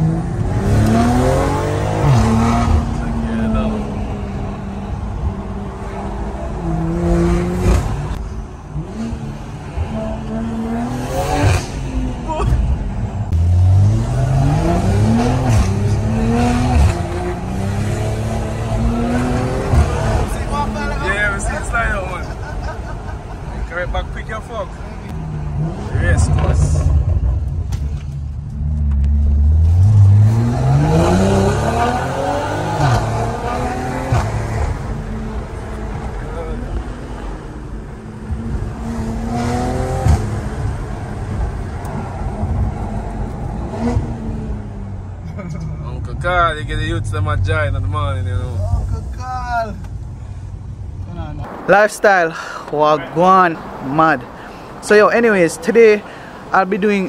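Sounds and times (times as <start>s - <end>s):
car engine accelerating: 0.0s - 23.5s, 24.8s - 51.6s
road noise: 0.0s - 57.0s
exhaust crack: 11.2s - 55.2s.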